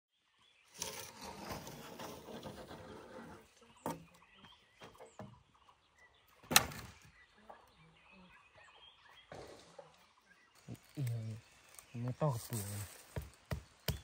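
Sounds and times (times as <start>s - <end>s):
sharp loud wood crack: 6.4s - 7.1s
charred wood knocks and crunches: 12.5s - 14.0s.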